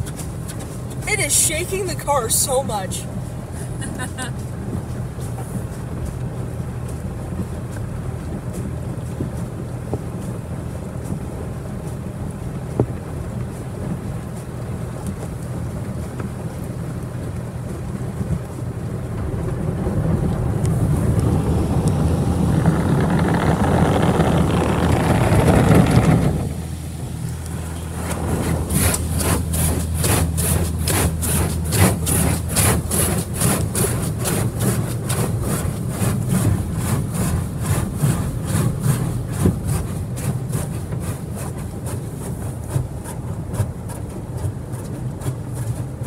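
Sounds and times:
wash machinery hum: 0:00.0 - 0:46.0
water jets spraying on car: 0:00.0 - 0:46.0.

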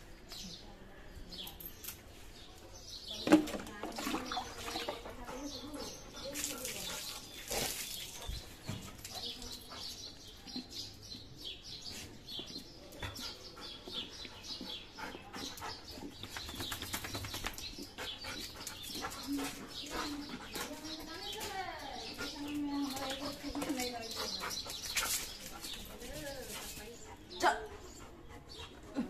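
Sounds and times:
water splashing on dog: 0:03.3 - 0:09.8.

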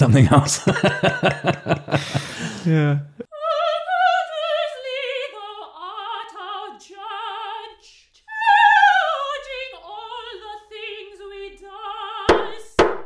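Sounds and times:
person singing operatically: 0:02.7 - 0:12.7.

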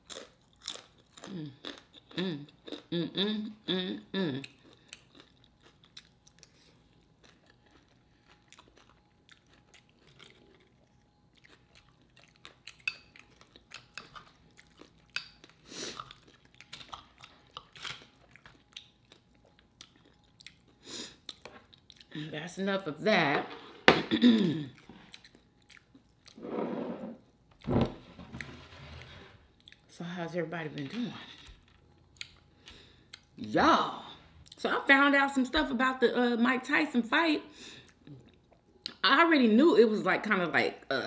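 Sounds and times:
chewing and crunching chips: 0:00.0 - 0:22.6, 0:24.3 - 0:26.4, 0:29.4 - 0:33.6.

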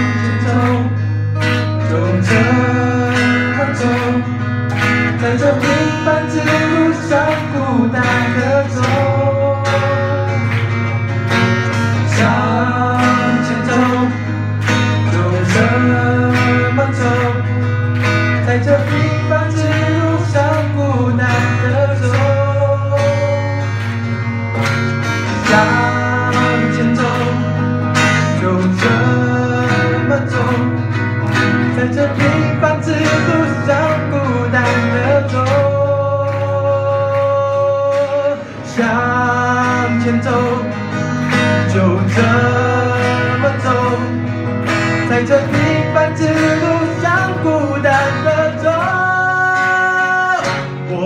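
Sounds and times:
acoustic guitars strumming: 0:00.0 - 0:51.0.

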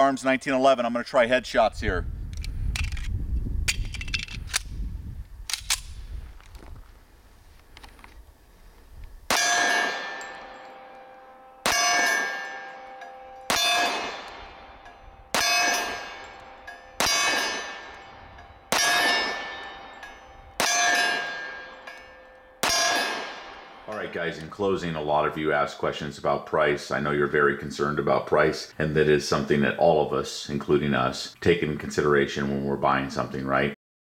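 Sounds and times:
pistol shots: 0:09.3 - 0:23.9
steel target ringing: 0:09.3 - 0:24.4.

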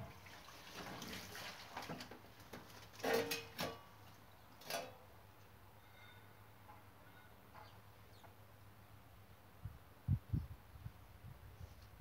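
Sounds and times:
water sloshing: 0:00.0 - 0:03.6.

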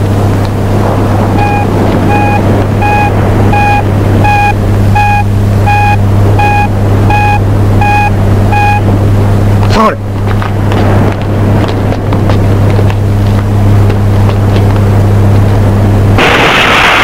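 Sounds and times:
low rumble: 0:00.0 - 0:17.0
detector short beeps: 0:01.4 - 0:08.8.

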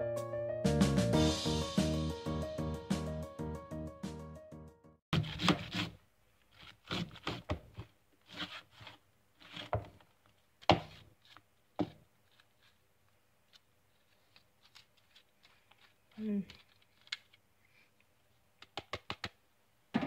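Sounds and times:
grating on metal hand grater: 0:08.2 - 0:09.7.

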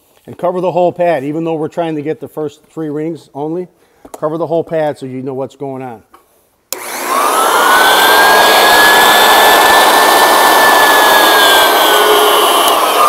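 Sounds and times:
sander switch click: 0:06.7 - 0:06.9, 0:12.6 - 0:12.9
sander motor whine: 0:06.8 - 0:13.0.

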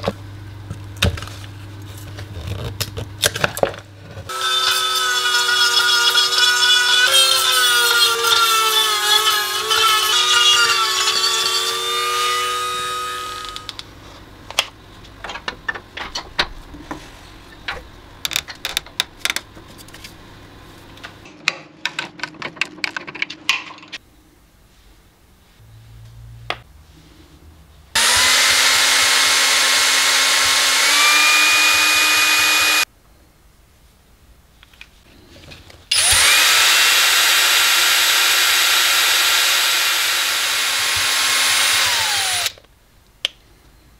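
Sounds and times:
drill stirring resin: 0:04.3 - 0:13.7, 0:28.0 - 0:32.9, 0:35.9 - 0:42.6
rotary carving tool grinding wood: 0:04.3 - 0:13.7, 0:28.0 - 0:32.9, 0:35.9 - 0:42.6.

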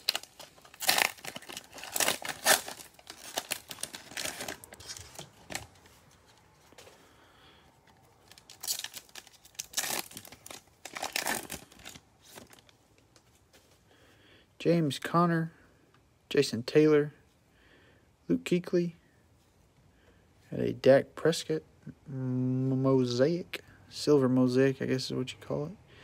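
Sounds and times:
foil wrapper crinkling and tearing: 0:00.0 - 0:05.9, 0:08.2 - 0:12.8.

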